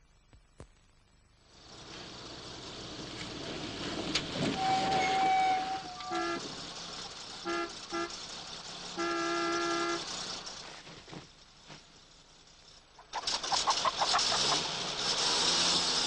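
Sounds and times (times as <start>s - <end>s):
car horn honking: 4.6s - 6.7s, 7.4s - 8.2s, 8.9s - 10.2s.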